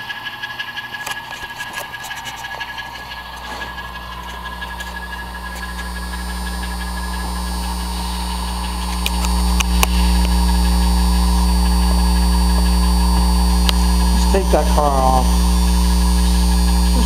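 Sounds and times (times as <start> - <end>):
low electrical mains hum: 0.0 - 17.0.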